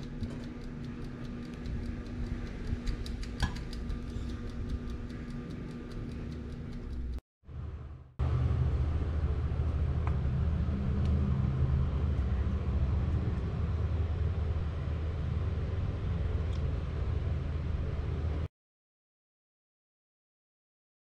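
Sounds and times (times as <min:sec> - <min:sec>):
faint clicks: 0:00.0 - 0:07.2
low background rumble: 0:00.0 - 0:18.5.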